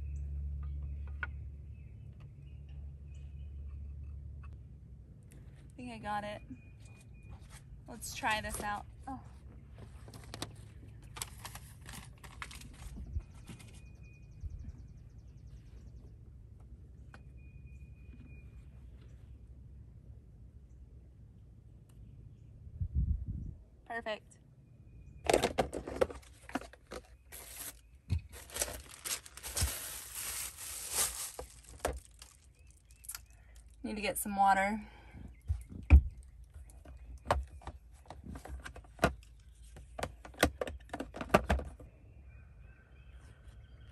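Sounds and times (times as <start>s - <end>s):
canvas wrapping crinkling: 9.9s - 13.0s, 27.3s - 33.2s.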